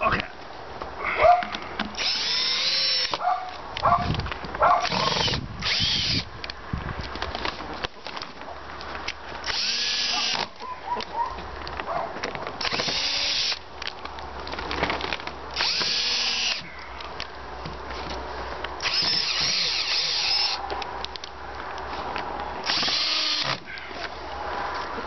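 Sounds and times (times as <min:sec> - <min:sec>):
cordless drill driving screws: 0:02.0 - 0:03.2, 0:04.8 - 0:06.3, 0:09.4 - 0:10.5, 0:12.6 - 0:13.6, 0:15.6 - 0:16.7, 0:18.8 - 0:20.6, 0:22.6 - 0:23.7.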